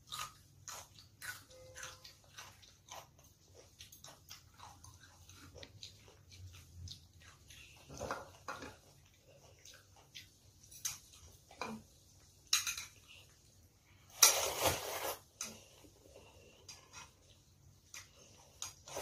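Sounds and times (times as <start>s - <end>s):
eating noises: 0.0s - 11.5s.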